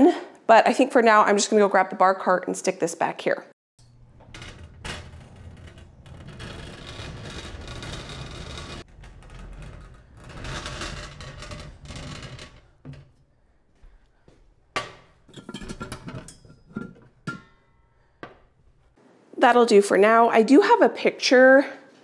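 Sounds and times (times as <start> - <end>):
bar cart rolling on casters: 3.8 - 13.3.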